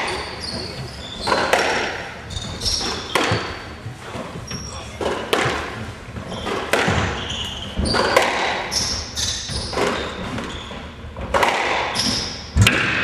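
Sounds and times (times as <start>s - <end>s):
shoes squeaking on wooden floor: 0.0s - 12.5s
squash ball hitting racquets and walls: 0.0s - 13.0s.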